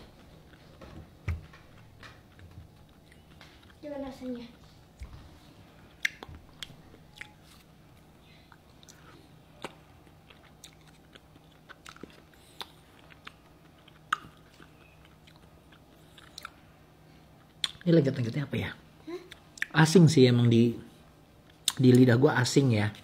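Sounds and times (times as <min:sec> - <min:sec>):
faint chewing: 0:00.1 - 0:00.9, 0:01.5 - 0:17.9.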